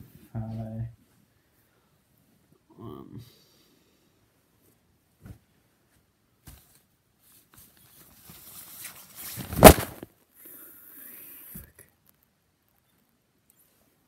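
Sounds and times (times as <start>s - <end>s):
fabric rustling: 4.6s - 10.1s.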